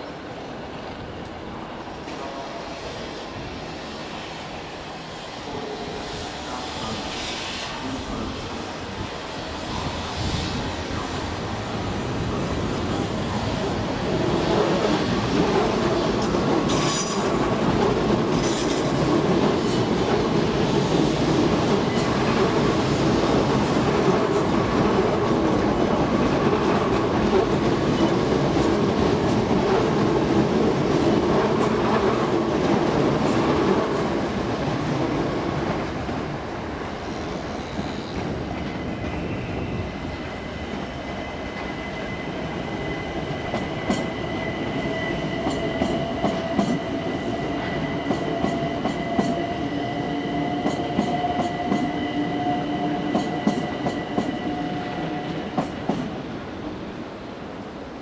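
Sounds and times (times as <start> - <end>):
train wheels clattering over rail joints: 15.3 - 20.2.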